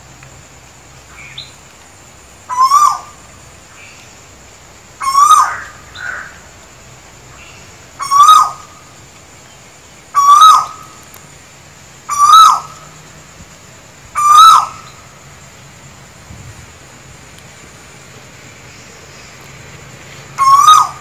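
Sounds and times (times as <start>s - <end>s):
bird calling: 2.5s - 4.2s, 5.0s - 6.6s, 7.3s - 11.1s, 12.0s - 13.0s, 14.1s - 15.2s, 20.2s - 21.0s.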